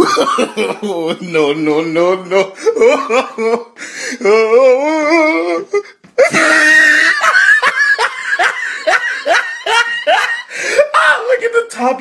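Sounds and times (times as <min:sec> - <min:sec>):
boys laughing loudly: 0:00.0 - 0:01.5, 0:02.3 - 0:03.8, 0:05.0 - 0:11.3.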